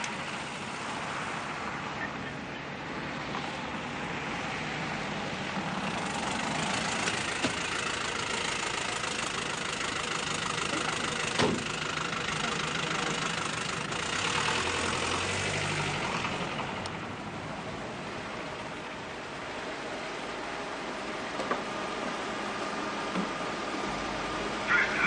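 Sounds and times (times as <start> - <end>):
traffic hiss: 0.0 - 25.0
car engine running: 5.0 - 25.0
car door shutting: 11.3 - 11.7.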